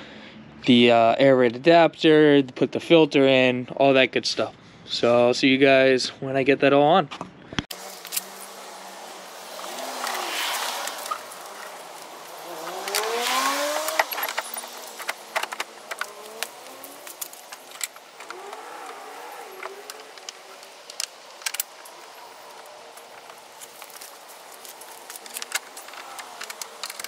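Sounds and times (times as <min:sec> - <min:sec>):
vehicle accelerating past: 0:07.8 - 0:27.0
clinks of tools and parts: 0:12.6 - 0:27.0.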